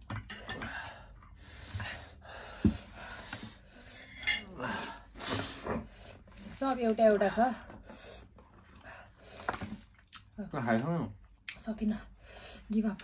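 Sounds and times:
dishes and cutlery clinking: 0:00.0 - 0:00.8, 0:04.1 - 0:04.5.

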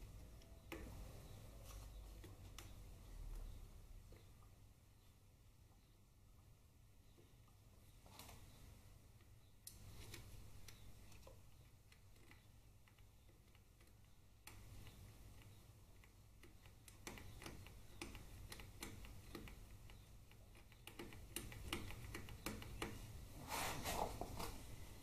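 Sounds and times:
small clicks of handling wiring: 0:09.2 - 0:23.1.

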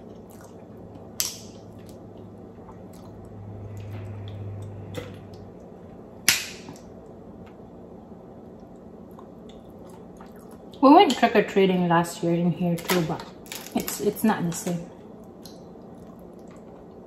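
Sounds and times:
small clicks and wet squishes: 0:00.0 - 0:03.4, 0:08.5 - 0:10.8, 0:12.8 - 0:17.0
low hum: 0:00.0 - 0:09.8.

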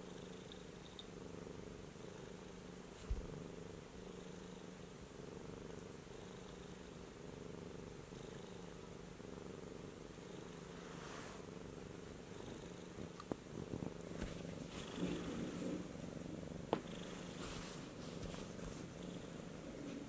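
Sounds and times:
cat purring: 0:00.0 - 0:20.0
small knocks and rustles: 0:13.0 - 0:15.9, 0:16.7 - 0:19.0.

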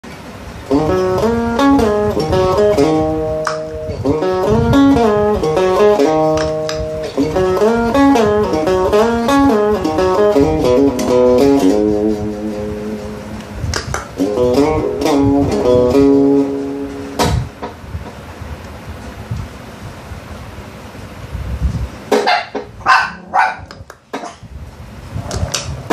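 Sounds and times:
electric guitar melodic line: 0:00.6 - 0:18.2.

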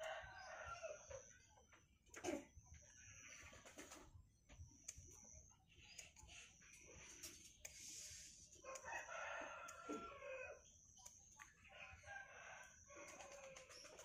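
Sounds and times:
rooster crowing: 0:00.0 - 0:01.2, 0:08.6 - 0:10.6.

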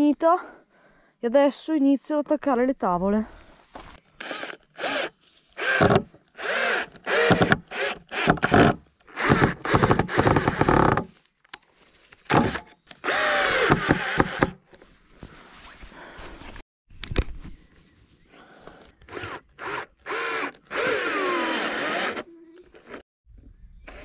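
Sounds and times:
cordless drill driving into wood: 0:04.2 - 0:11.1, 0:12.3 - 0:14.6, 0:19.0 - 0:23.0.

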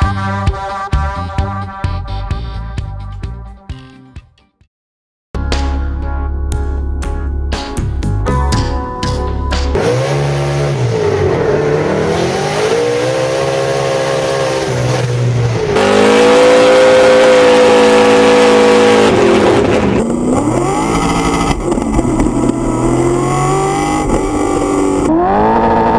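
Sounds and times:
car engine revving hard: 0:09.8 - 0:25.9.

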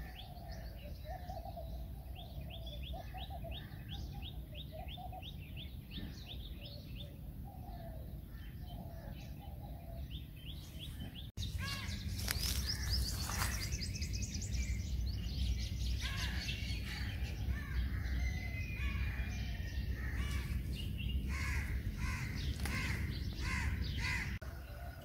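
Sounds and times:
birds calling: 0:00.0 - 0:25.0
crow cawing: 0:16.0 - 0:20.5, 0:21.3 - 0:24.4.

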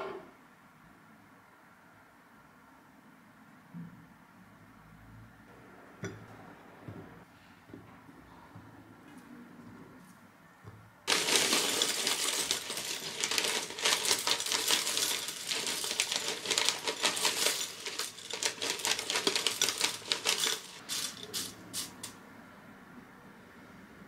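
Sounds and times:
plastic bag rustling: 0:11.1 - 0:22.1
cereal flakes poured into a mug: 0:11.1 - 0:22.2.

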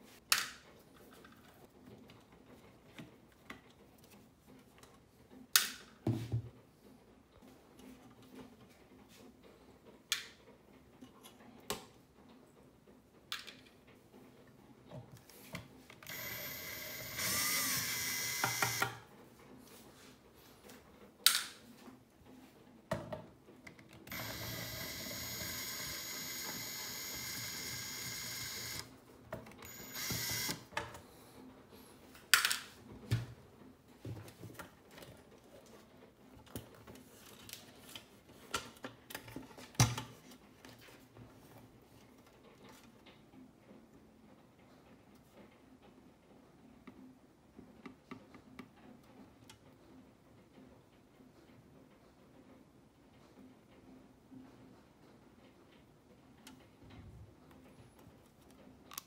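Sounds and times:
cordless drill running: 0:16.0 - 0:19.0, 0:24.1 - 0:28.9, 0:29.6 - 0:30.6.

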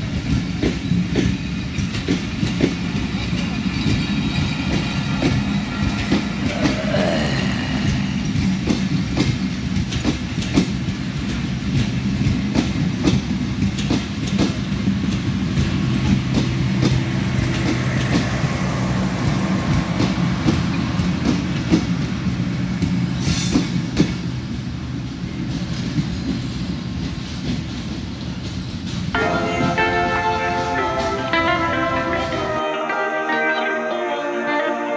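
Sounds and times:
train wheels clacking on rail joints: 0:00.0 - 0:29.8
low train hum: 0:00.0 - 0:34.9.

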